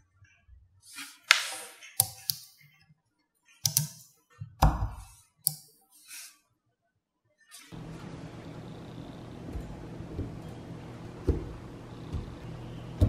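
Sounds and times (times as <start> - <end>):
magnetic balls clicking: 2.0 - 2.6, 3.7 - 4.0.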